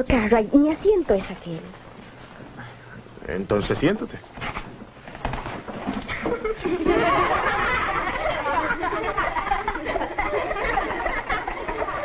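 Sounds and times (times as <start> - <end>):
children laughing and giggling: 6.1 - 12.0.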